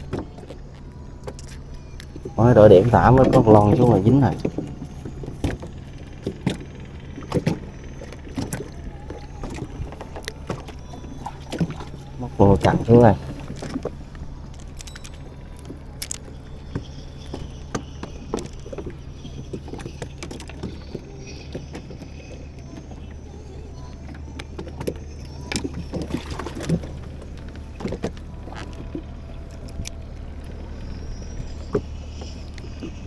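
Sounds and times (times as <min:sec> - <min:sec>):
low engine drone: 0:00.0 - 0:33.0
fishing gear clicking and knocking: 0:12.6 - 0:22.9.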